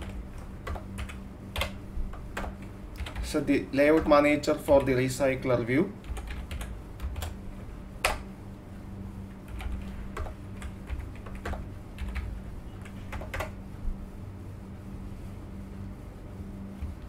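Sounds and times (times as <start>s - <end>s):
typing on keyboard: 0.0s - 4.9s, 6.0s - 7.4s, 9.5s - 13.6s
faint low hum: 0.0s - 17.0s.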